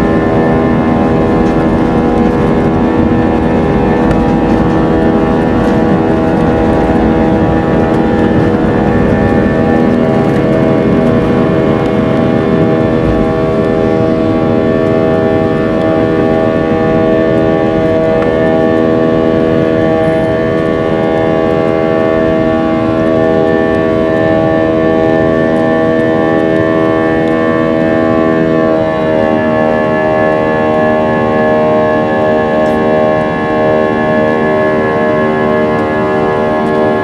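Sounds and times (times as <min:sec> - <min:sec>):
rushing noise: 0:00.0 - 0:23.4
airliner engines droning: 0:00.0 - 0:37.0.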